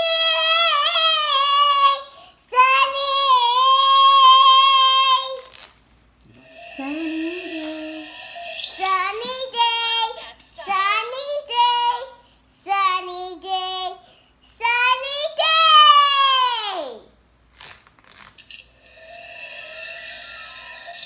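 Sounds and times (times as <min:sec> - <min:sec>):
girl singing: 0:00.0 - 0:05.5, 0:06.8 - 0:16.2.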